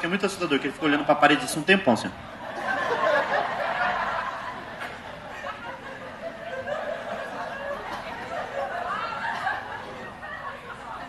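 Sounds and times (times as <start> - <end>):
audience laughing: 2.3 - 11.0.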